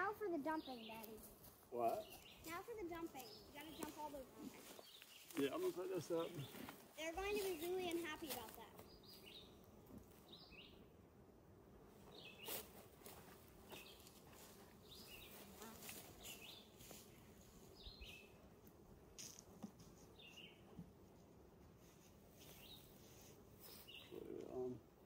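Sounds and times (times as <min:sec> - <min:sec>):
honeybees buzzing: 0:00.0 - 0:25.0
bird chirping: 0:01.9 - 0:06.7, 0:08.8 - 0:09.6, 0:10.2 - 0:10.9, 0:12.0 - 0:12.6, 0:14.8 - 0:16.8, 0:17.6 - 0:18.4, 0:20.1 - 0:20.7.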